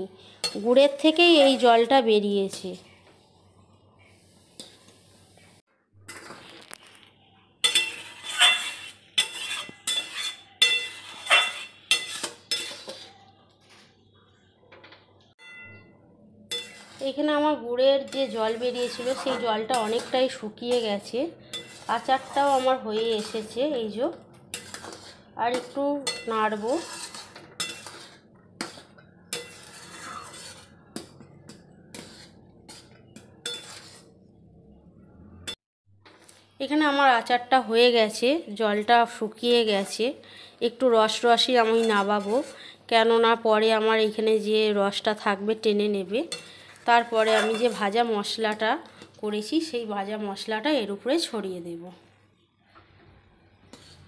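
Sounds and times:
spatula scraping metal pan: 0:00.2 - 0:02.7, 0:06.1 - 0:07.0, 0:07.6 - 0:13.2, 0:16.5 - 0:34.3, 0:41.0 - 0:43.4, 0:44.0 - 0:49.7, 0:53.1 - 0:54.0
pan ringing faintly: 0:15.4 - 0:16.1.

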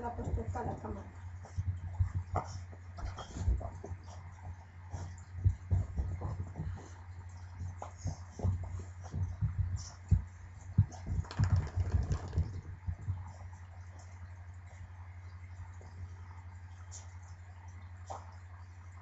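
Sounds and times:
soft thumps: 0:07.7 - 0:13.3.

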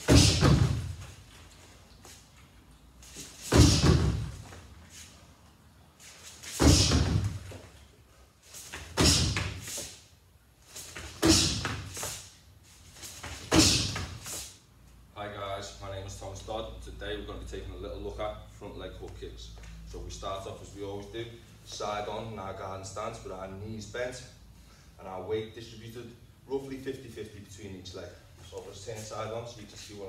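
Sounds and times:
kicks thudding on punch bag: 0:00.0 - 0:01.0, 0:03.5 - 0:04.4, 0:06.6 - 0:07.4, 0:09.0 - 0:09.6, 0:11.2 - 0:11.9, 0:13.5 - 0:14.2.

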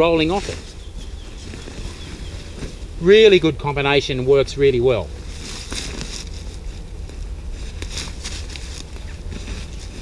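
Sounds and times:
low background rumble: 0:00.0 - 0:10.0
sleeping bag rustling and crinkling: 0:00.0 - 0:10.0.

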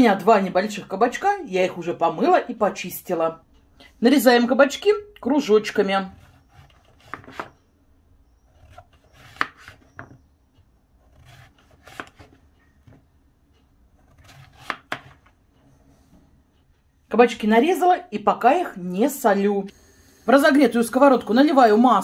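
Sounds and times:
knife slicing zucchini: 0:06.2 - 0:07.6, 0:08.6 - 0:10.1, 0:11.0 - 0:12.4, 0:14.0 - 0:15.2
blade tapping cutting board: 0:06.4 - 0:07.6, 0:08.6 - 0:10.2, 0:11.1 - 0:13.0, 0:14.1 - 0:15.2.

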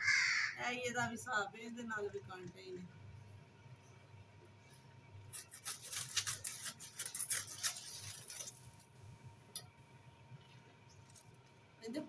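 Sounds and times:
palm fronds rustling and scraping: 0:05.4 - 0:08.9.

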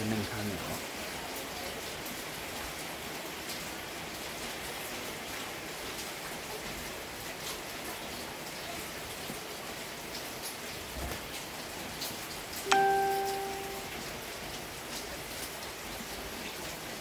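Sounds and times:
steady rain hiss: 0:00.0 - 0:17.0
water drips ticking: 0:11.4 - 0:14.1.

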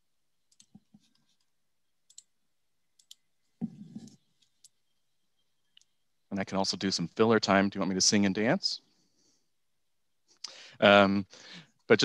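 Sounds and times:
computer clicks: 0:00.5 - 0:02.3, 0:03.0 - 0:04.8.

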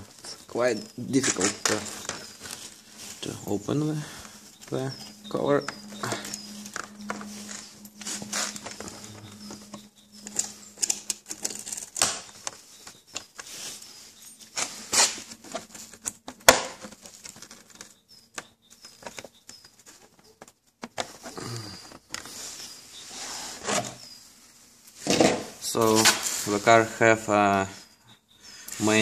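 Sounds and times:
low steady hum: 0:00.0 - 0:12.4.

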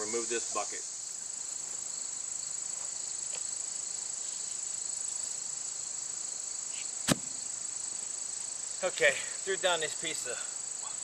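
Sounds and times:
insects chorus: 0:00.0 - 0:11.0
board thudding onto grass: 0:06.8 - 0:07.5.

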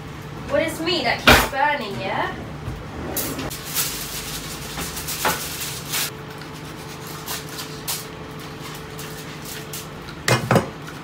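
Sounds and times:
aluminium foil crinkling: 0:03.5 - 0:10.2.

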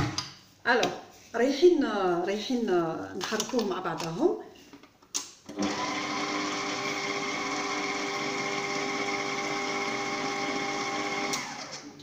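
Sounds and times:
stand mixer motor running: 0:05.5 - 0:11.8.

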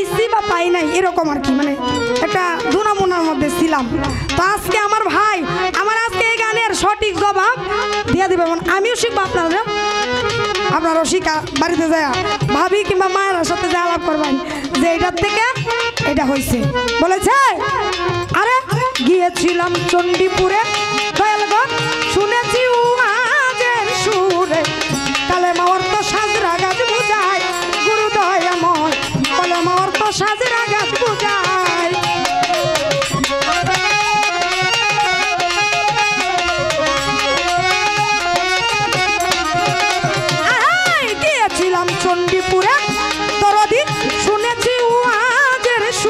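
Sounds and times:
ornamented folk melody: 0:00.0 - 0:46.0
hand drum beat: 0:23.7 - 0:44.8.

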